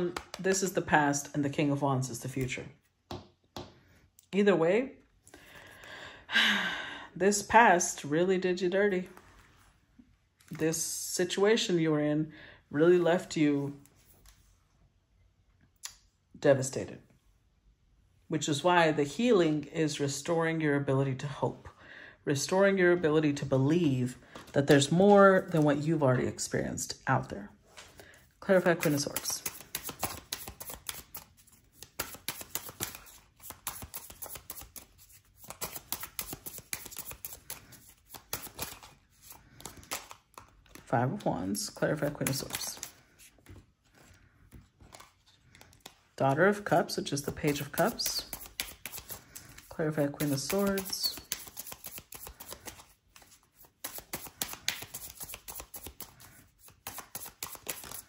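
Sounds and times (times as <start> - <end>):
cards being shuffled: 0.0 - 0.8, 27.7 - 58.0.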